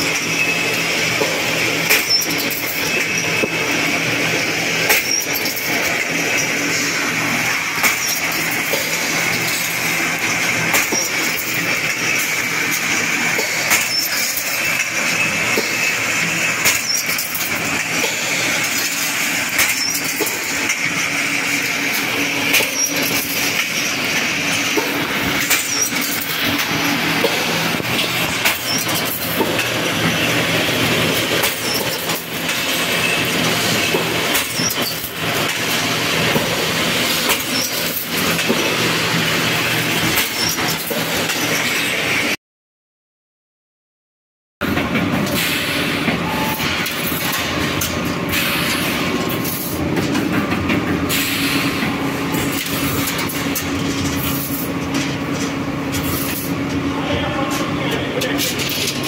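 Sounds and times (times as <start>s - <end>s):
wire cutting machine whining: 0.0s - 42.4s.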